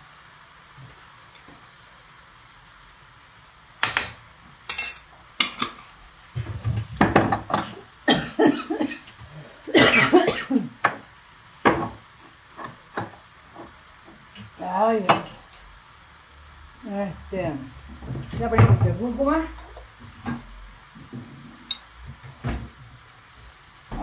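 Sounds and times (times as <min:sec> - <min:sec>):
faint sizzle from pan: 0:00.0 - 0:24.0
spice containers and utensils knocking: 0:06.6 - 0:07.7, 0:11.6 - 0:12.0.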